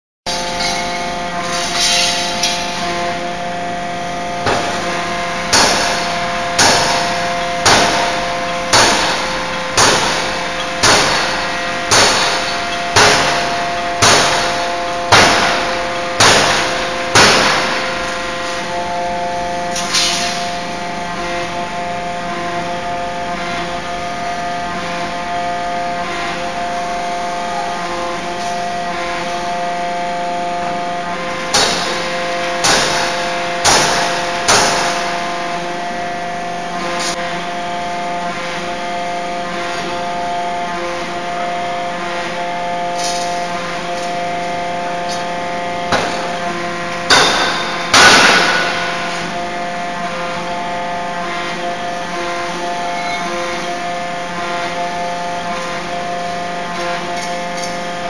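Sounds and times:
forging hammer blows ringing: 0.3 - 23.4, 31.5 - 35.5, 42.9 - 49.9
steady machine hum: 0.3 - 58.0.

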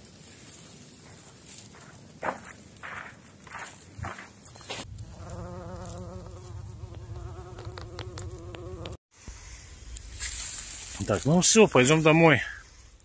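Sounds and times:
flying insect buzzing: 4.9 - 9.0.

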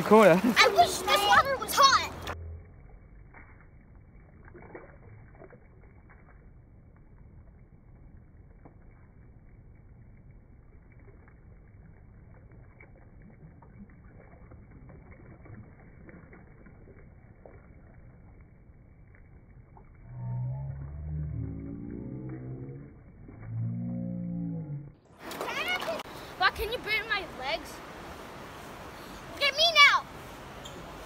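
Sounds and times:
shallow river rushing and lapping: 0.0 - 2.4, 25.2 - 31.0.

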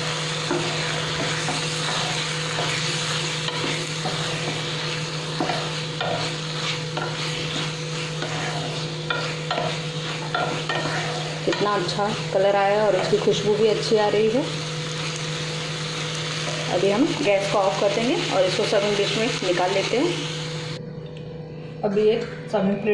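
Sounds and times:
steady sizzle: 0.0 - 20.8
spatula scraping a pan: 0.4 - 13.2.

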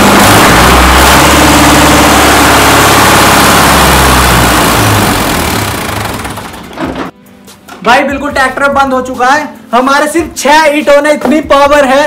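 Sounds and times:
tractor diesel engine straining: 0.0 - 7.2.

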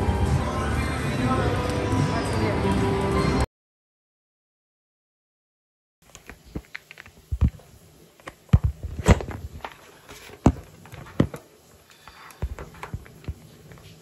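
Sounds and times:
thumps and knocks: 6.2 - 7.6, 8.2 - 11.4, 12.4 - 13.5.

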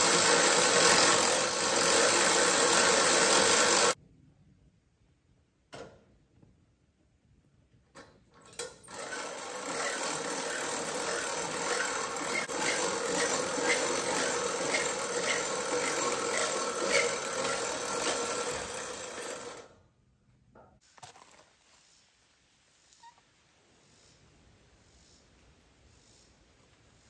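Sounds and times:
hand winch rasping and rattling: 0.0 - 4.0, 8.8 - 19.7.

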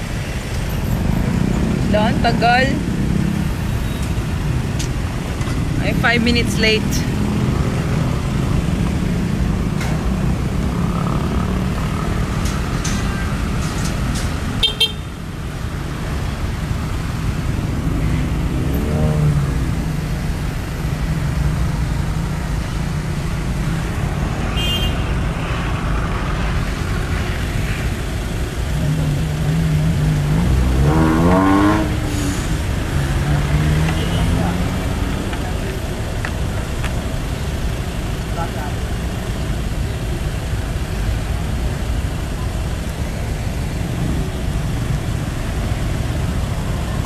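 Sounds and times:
motorcycle engine and road rumble: 0.0 - 47.0
vehicle accelerating: 0.8 - 14.6, 15.8 - 39.9
horn toots: 24.5 - 25.1.

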